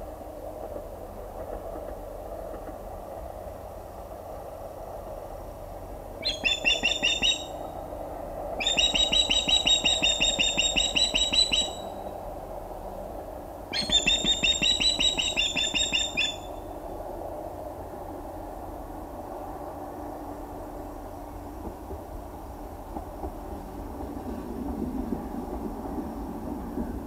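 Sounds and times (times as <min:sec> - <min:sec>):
osprey alarm calls: 0:06.2 - 0:07.6, 0:08.6 - 0:12.0, 0:13.7 - 0:16.7.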